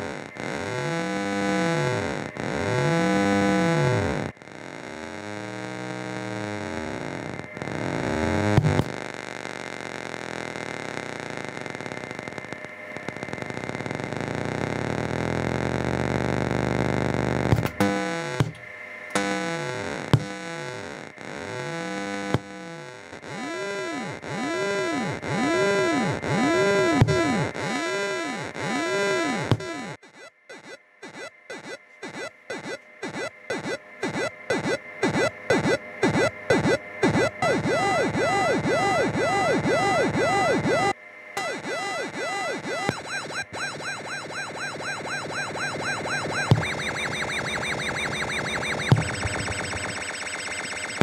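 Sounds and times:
buzzy low synthesizer tone: 0.0s - 18.6s, 19.2s - 51.0s.

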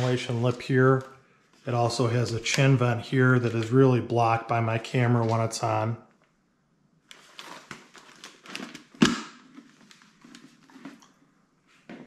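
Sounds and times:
helmet handling rustles: 7.1s - 12.0s.

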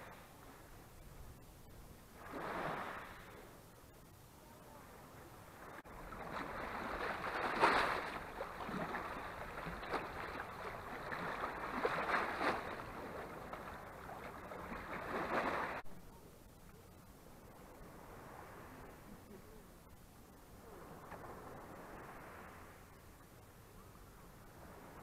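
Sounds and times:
small waves lapping on pebbly shore: 2.2s - 3.4s, 5.6s - 15.8s.

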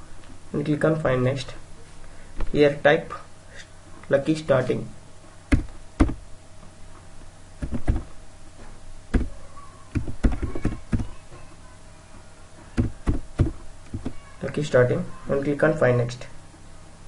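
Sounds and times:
computer keyboard typing: 7.6s - 8.1s.

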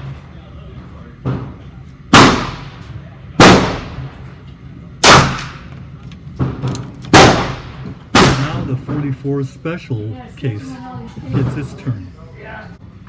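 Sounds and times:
faint gunshot report: 2.1s - 2.8s
gunshots with long echo: 2.1s - 2.8s, 3.4s - 4.1s, 5.0s - 5.7s, 7.1s - 8.7s.

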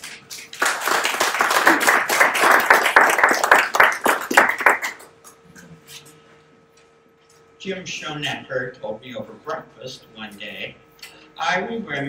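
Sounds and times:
audience clapping: 0.0s - 5.2s.

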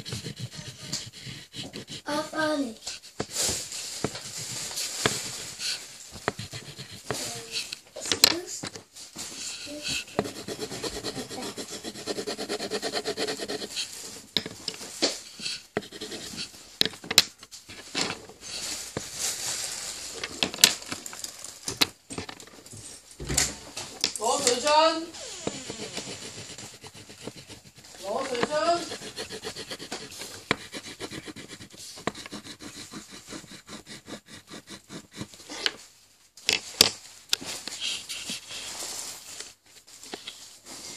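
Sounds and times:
pencil clicks and knocks: 0.0s - 2.2s, 2.8s - 3.4s, 4.0s - 8.8s, 9.4s - 18.2s, 21.6s - 22.5s, 25.4s - 35.8s
pencil scribbling on paper: 0.0s - 3.4s, 4.0s - 7.8s, 9.3s - 14.1s, 15.3s - 16.6s, 24.3s - 35.6s, 37.8s - 38.7s.

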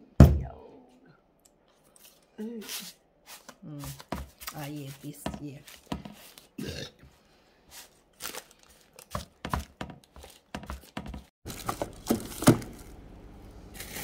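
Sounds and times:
paper crinkling: 7.7s - 13.0s.

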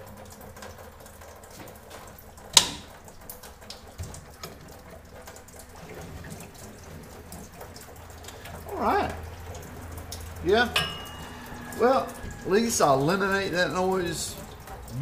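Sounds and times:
sharp metal clank: 10.8s - 11.6s.

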